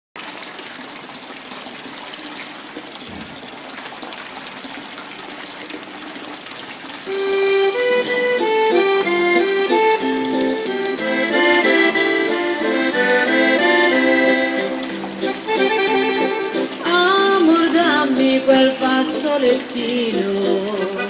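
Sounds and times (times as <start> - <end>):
water splashing: 0.2 - 21.0
instrumental music: 7.1 - 21.0.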